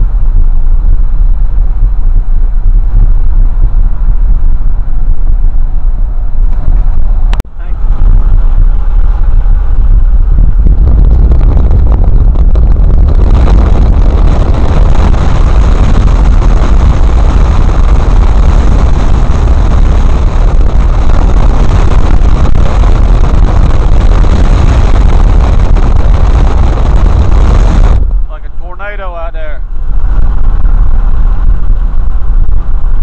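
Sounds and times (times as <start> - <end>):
low rumble on microphone: 0.0 - 33.0
wind and road noise: 0.0 - 33.0.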